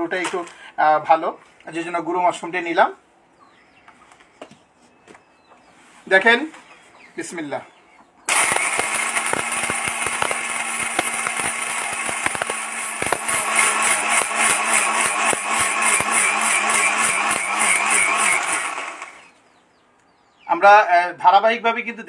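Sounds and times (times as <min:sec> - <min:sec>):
mixer grinder motor running: 0:08.3 - 0:19.4
dry pieces ticking against jar: 0:08.4 - 0:16.2.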